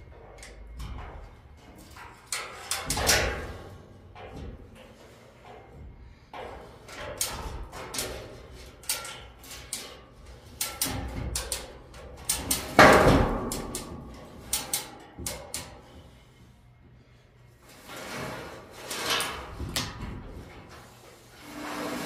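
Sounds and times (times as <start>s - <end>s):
metal knocks and clicks: 0.0s - 15.9s.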